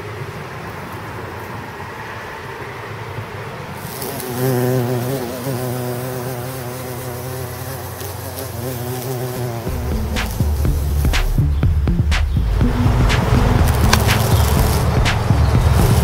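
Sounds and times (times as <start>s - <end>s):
bee buzzing in flight: 3.8s - 16.0s.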